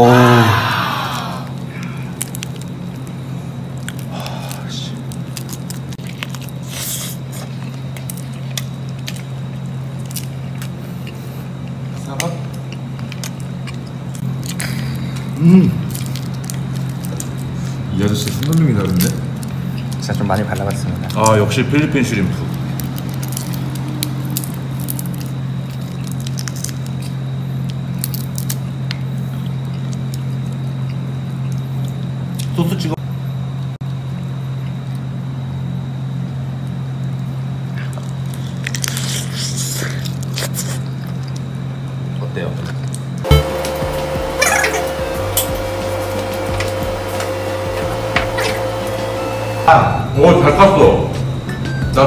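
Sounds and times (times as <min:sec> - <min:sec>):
steady low hum: 0:00.0 - 0:52.0
low hum: 0:43.2 - 0:52.0.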